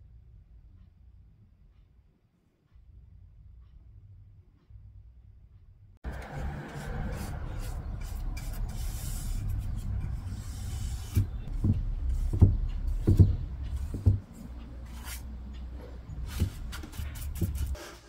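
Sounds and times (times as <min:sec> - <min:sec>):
paintbrush stroking paint on board: 0:06.1 - 0:18.0.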